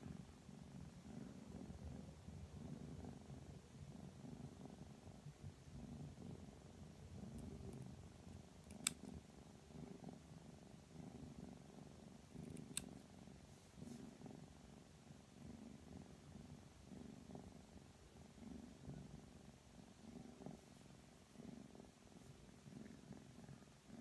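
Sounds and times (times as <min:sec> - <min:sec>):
kitten purring: 0:00.0 - 0:24.0
nail clippers clicking: 0:08.7 - 0:09.0.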